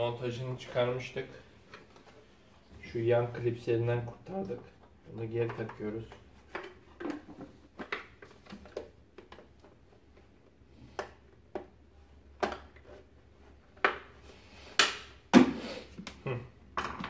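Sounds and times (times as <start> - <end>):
plastic parts clicking and knocking: 4.0 - 13.1, 16.0 - 17.0.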